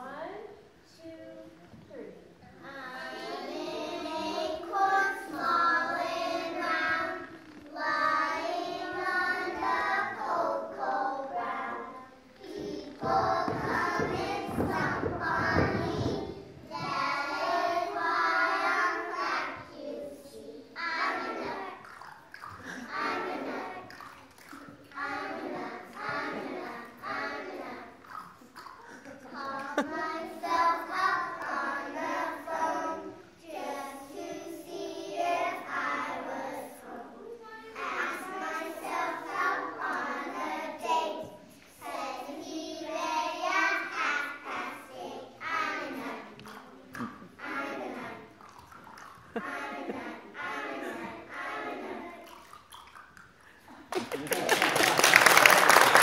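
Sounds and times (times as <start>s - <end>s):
children singing: 2.6s - 52.6s
audience applause: 53.9s - 56.0s.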